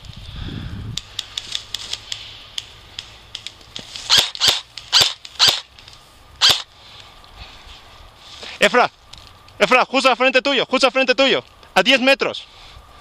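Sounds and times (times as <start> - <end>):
faint clicks: 0.9 - 6.0
airsoft rifle shots: 4.1 - 5.7, 6.4 - 6.7.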